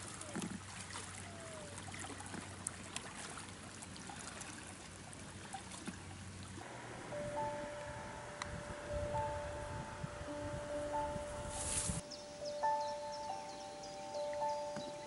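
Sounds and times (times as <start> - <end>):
paddle splashes: 0.0 - 8.0
soft held music notes: 6.6 - 15.0.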